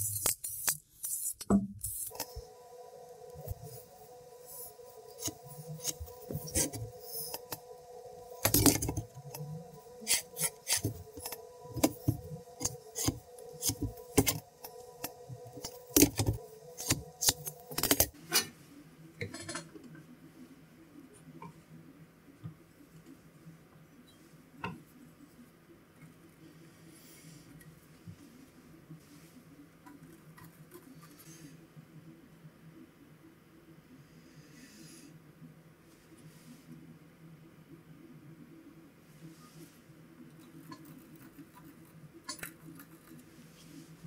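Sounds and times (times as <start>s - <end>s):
pencil scratching: 0.0s - 2.4s, 4.5s - 7.7s, 8.3s - 18.1s
faint steady tone: 1.6s - 44.0s.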